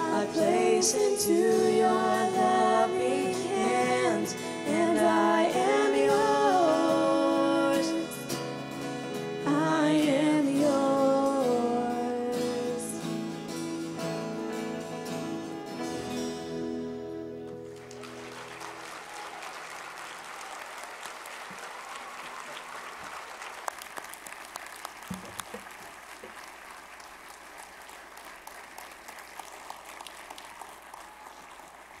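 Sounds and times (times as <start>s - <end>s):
congregation applauding: 17.6s - 32.0s.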